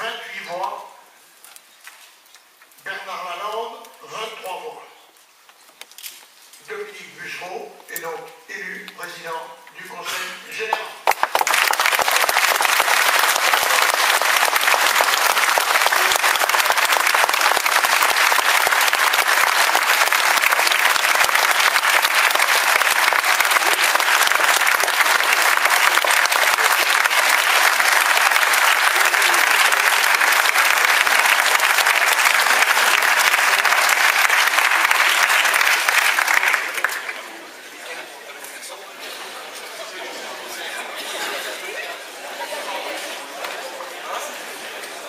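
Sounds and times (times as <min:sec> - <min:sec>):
crowd applauding: 0:10.7 - 0:37.4.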